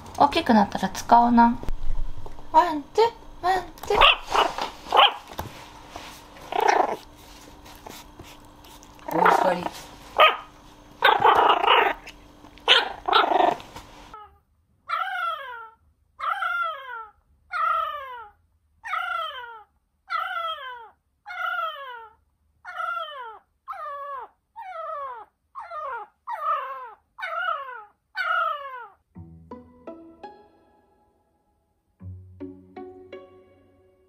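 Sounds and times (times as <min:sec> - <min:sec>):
puppy barking: 0:03.9 - 0:05.3, 0:10.2 - 0:13.6, 0:14.9 - 0:29.0
puppy howling: 0:09.1 - 0:29.0.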